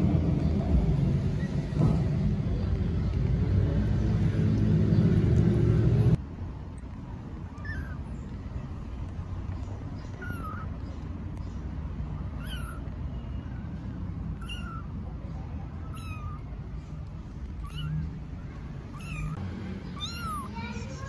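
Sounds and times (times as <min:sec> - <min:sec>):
low background rumble: 0:00.0 - 0:21.0
kittens mewing: 0:07.4 - 0:09.1, 0:09.8 - 0:11.4, 0:12.2 - 0:13.2, 0:14.1 - 0:21.0.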